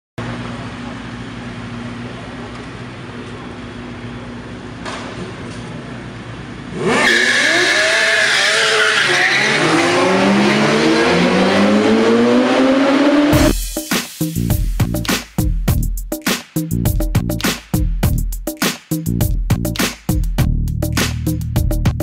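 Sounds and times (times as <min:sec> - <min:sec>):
motorcycles idling: 0:00.2 - 0:06.7
motorcycles revving and accelerating: 0:06.6 - 0:13.5.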